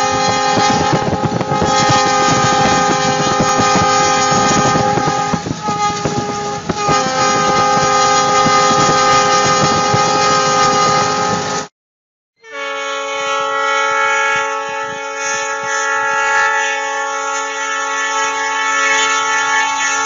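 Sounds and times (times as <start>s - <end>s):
locomotive air horn: 0.0s - 11.7s, 12.4s - 20.0s
train rumbling: 0.0s - 11.7s, 12.5s - 20.0s
wind noise: 0.0s - 11.7s.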